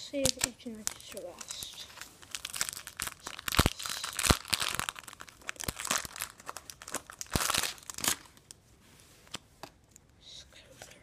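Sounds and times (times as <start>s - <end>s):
foil wrappers crinkling: 0.1s - 8.6s.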